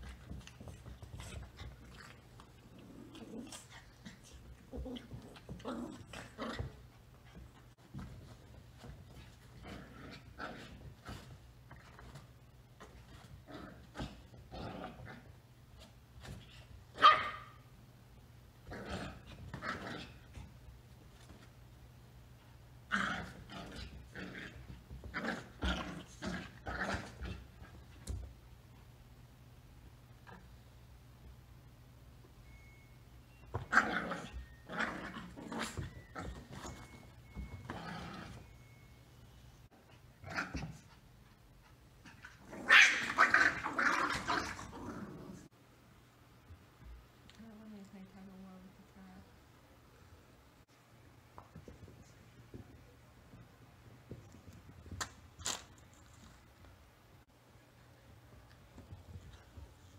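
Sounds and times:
puppies play-growling: 0:00.0 - 0:12.2, 0:22.9 - 0:28.3, 0:33.6 - 0:38.6, 0:39.9 - 0:41.1, 0:41.7 - 0:45.5.

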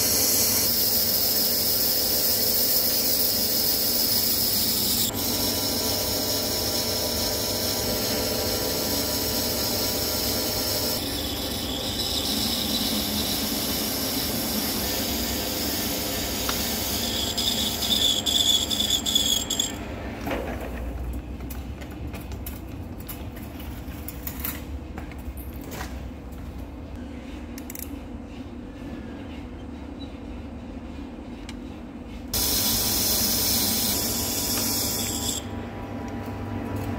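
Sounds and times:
lathe tool cutting steel: 0:00.0 - 0:19.8, 0:32.4 - 0:35.5.

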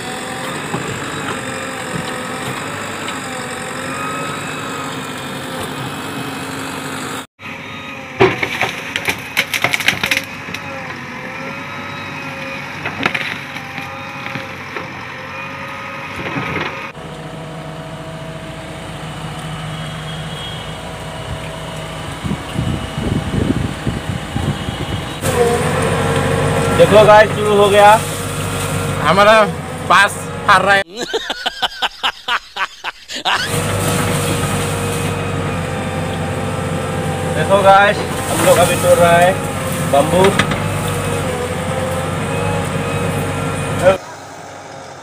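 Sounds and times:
diesel engine running under load: 0:00.0 - 0:30.8, 0:33.2 - 0:45.0
bamboo cracking and snapping: 0:08.3 - 0:10.7.

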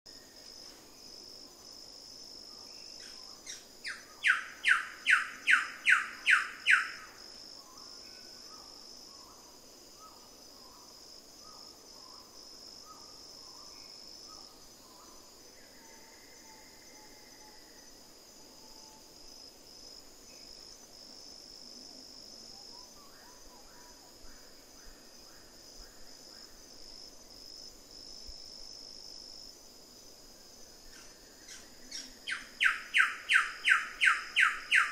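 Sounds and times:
high insect drone: 0:00.1 - 0:34.9.

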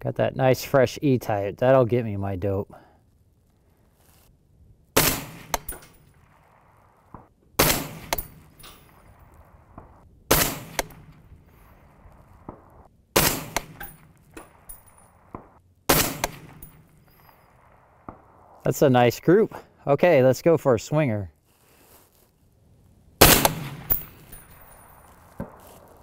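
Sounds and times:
suppressed rifle shots: 0:05.0 - 0:18.6, 0:23.2 - 0:26.0.

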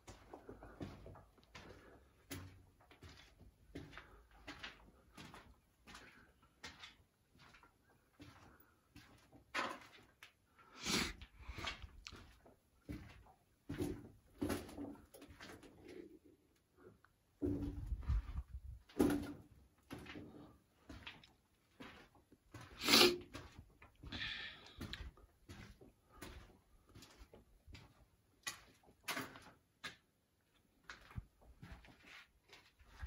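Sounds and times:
footsteps crunching over rubble: 0:00.0 - 0:16.2, 0:17.3 - 0:33.0
short scrape: 0:22.7 - 0:23.3.

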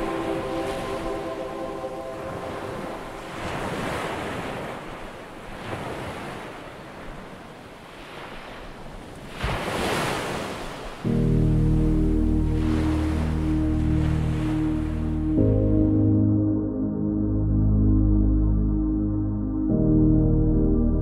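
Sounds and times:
music with sustained tones: 0:00.0 - 0:03.8, 0:11.1 - 0:21.0
ocean waves washing in: 0:00.0 - 0:17.2.

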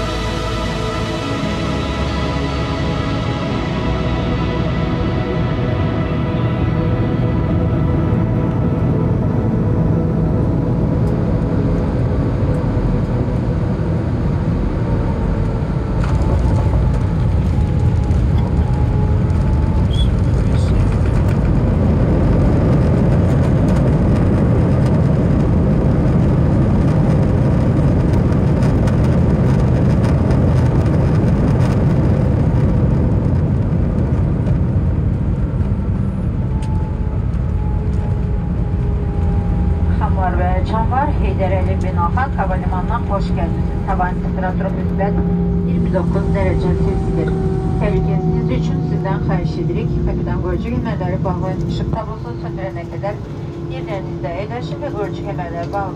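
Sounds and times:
aircraft cabin rumble on landing: 0:00.0 - 0:55.9.

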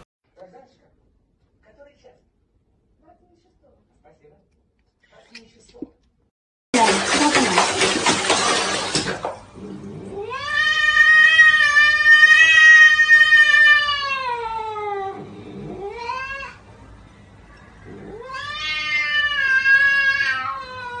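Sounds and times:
cat yowling: 0:10.2 - 0:16.6, 0:18.0 - 0:21.0.

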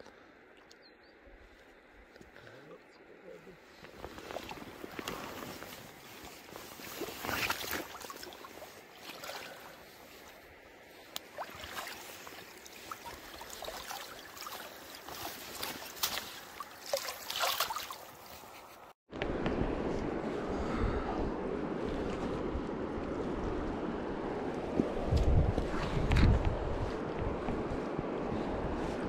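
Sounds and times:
fish splashing in water: 0:11.2 - 0:18.5.

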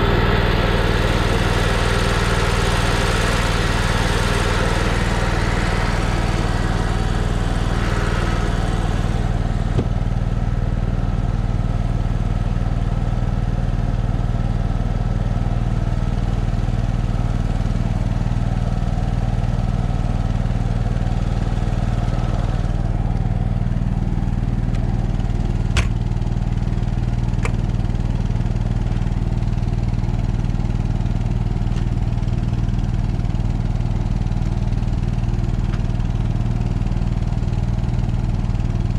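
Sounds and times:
generator engine running: 0:00.0 - 0:38.9.

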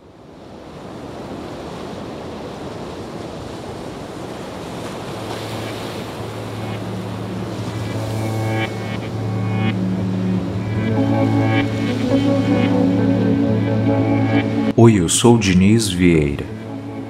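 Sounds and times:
ambient background music: 0:05.3 - 0:14.8, 0:16.5 - 0:17.0.

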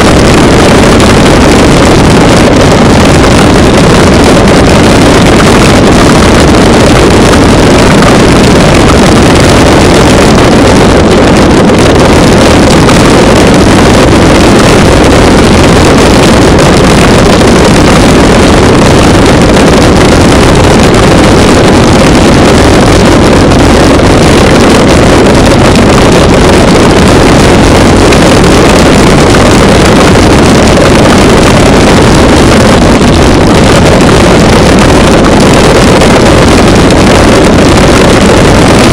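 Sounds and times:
wind rumble on camera microphone: 0:00.0 - 0:38.9.

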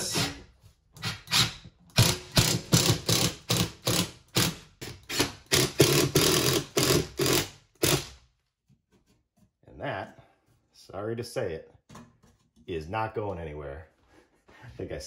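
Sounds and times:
impact driver hammering: 0:01.3 - 0:08.2.

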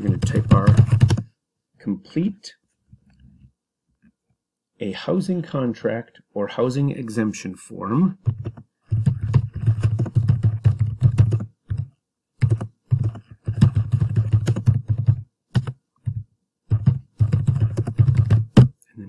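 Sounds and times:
typing on keyboard: 0:00.0 - 0:01.3, 0:08.2 - 0:18.8.

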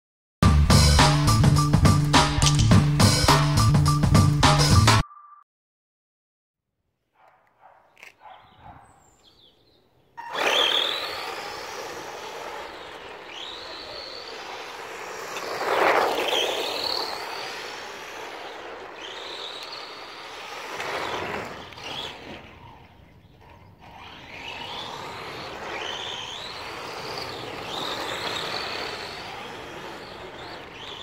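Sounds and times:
tyres crunching on concrete: 0:07.2 - 0:09.0, 0:10.9 - 0:22.5
electric motor and gears whining: 0:10.2 - 0:31.0.

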